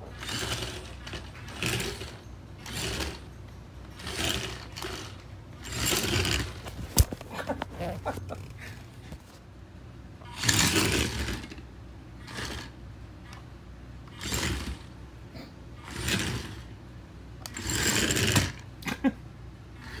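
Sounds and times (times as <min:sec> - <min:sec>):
toy robot motors whirring: 0:00.0 - 0:08.5, 0:10.2 - 0:15.0, 0:15.8 - 0:16.8, 0:17.4 - 0:18.7, 0:19.8 - 0:20.0.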